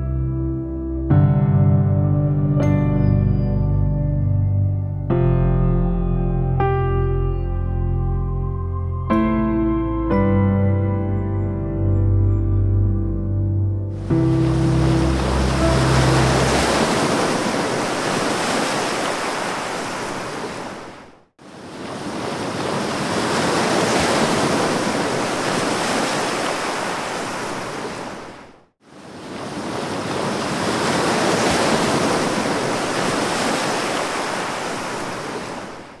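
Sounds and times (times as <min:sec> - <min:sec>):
ocean surf rushing: 0:14.0 - 0:36.0.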